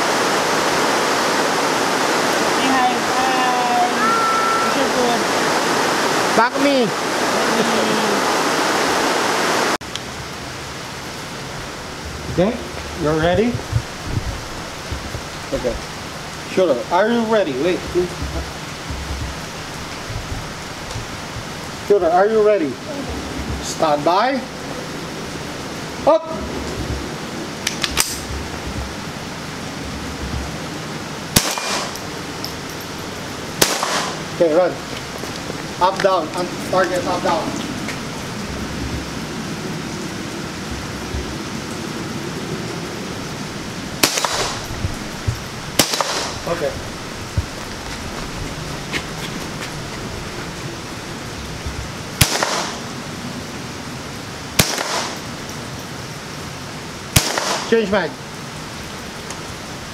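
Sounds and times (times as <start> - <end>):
background hiss: 0.0 - 59.9
rifle shot: 31.3 - 32.0, 33.6 - 34.2, 44.0 - 44.7, 45.8 - 46.4, 52.2 - 52.8, 54.6 - 55.2, 57.2 - 57.7.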